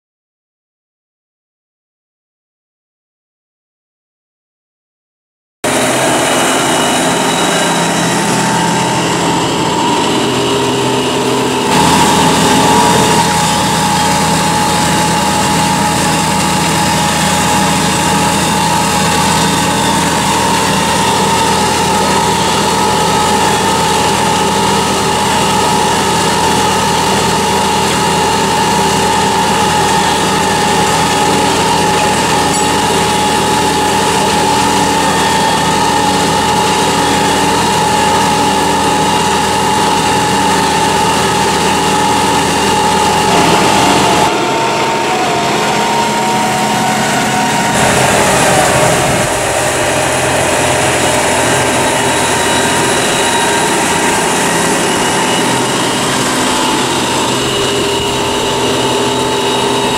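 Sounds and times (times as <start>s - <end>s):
steady whine: 5.6s - 59.9s
tractor engine under load: 5.6s - 59.9s.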